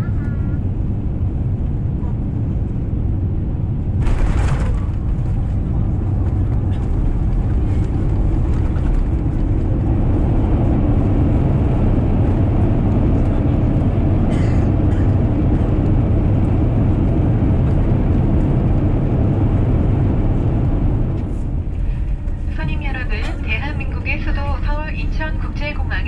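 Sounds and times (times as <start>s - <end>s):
aircraft engines and wheels rumbling: 0.0s - 26.0s
brief cabin rattle: 3.9s - 9.7s.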